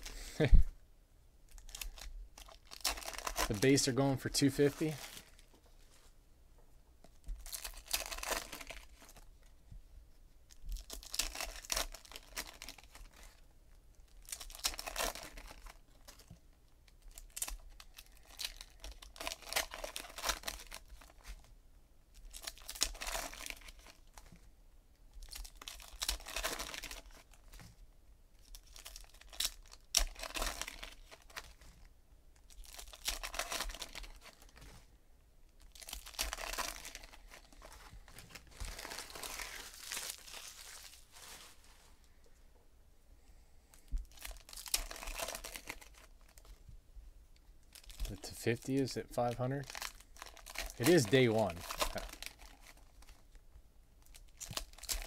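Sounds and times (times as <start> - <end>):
trading cards rustling: 1.6 - 5.5, 7.4 - 9.2, 28.6 - 31.6, 32.5 - 34.9, 35.6 - 42.2, 44.1 - 46.6, 47.7 - 53.2.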